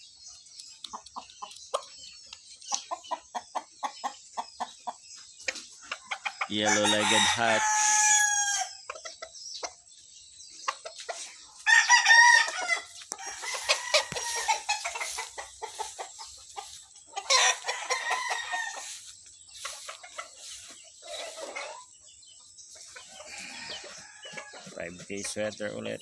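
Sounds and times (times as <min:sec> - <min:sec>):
rooster crowing: 0:06.6 - 0:08.7, 0:11.7 - 0:14.7, 0:17.3 - 0:19.0, 0:23.3 - 0:24.4
rooster clucking: 0:10.7 - 0:21.9.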